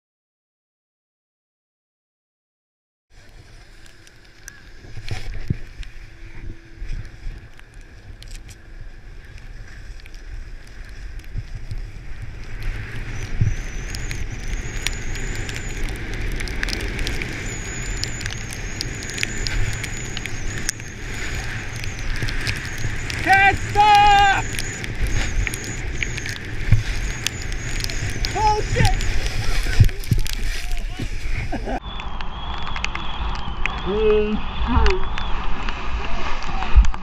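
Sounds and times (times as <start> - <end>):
snowboard scraping over snow: 3.2 - 31.8
wind on microphone: 4.4 - 37.0
thin high whistle: 31.6 - 35.6.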